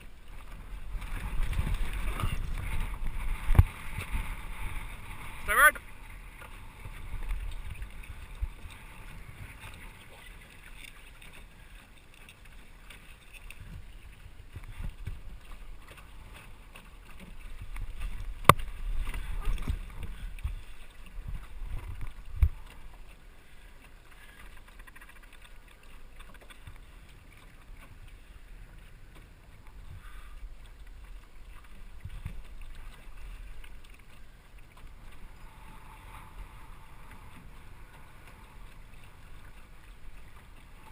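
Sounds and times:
wind rumble on microphone: 0:00.0 - 0:10.2, 0:13.5 - 0:16.6, 0:17.2 - 0:23.0
water sloshing along a hull: 0:00.0 - 0:40.9.

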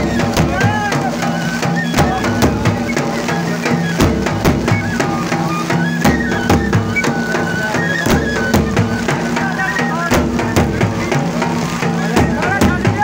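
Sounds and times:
folk dance melody: 0:00.0 - 0:13.0
steady drum beat: 0:00.0 - 0:13.0.

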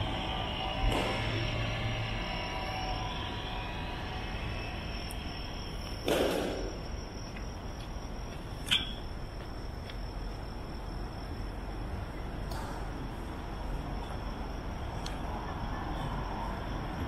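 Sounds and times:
loud noisy rush: 0:00.0 - 0:05.6
thin high tone: 0:00.0 - 0:09.2
low background hum: 0:00.0 - 0:17.0.

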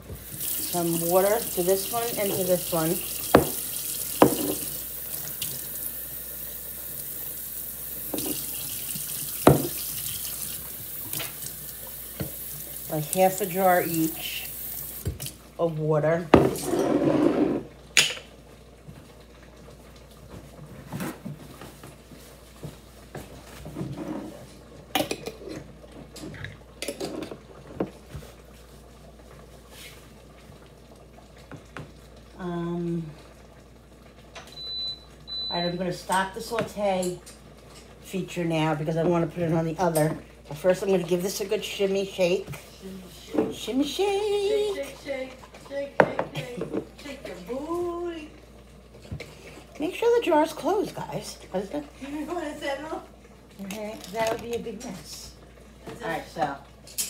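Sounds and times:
tap water running into jars: 0:00.0 - 0:15.4, 0:43.4 - 0:48.4
glass jar knocks: 0:04.2 - 0:04.6.

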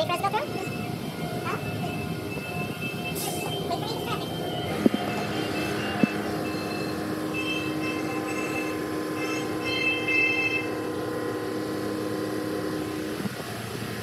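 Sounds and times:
high-pitched whine: 0:00.0 - 0:13.3
steady mechanical hum: 0:03.5 - 0:14.0.

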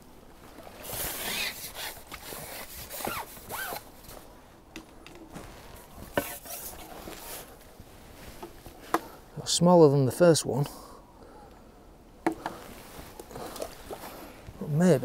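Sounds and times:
fishing tackle rustling and scraping: 0:00.2 - 0:09.2, 0:12.3 - 0:15.0.

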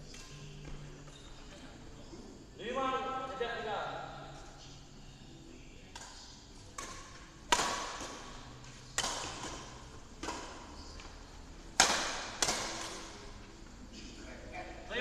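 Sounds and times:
rackets smacking shuttlecock: 0:05.9 - 0:11.1, 0:11.8 - 0:13.2.

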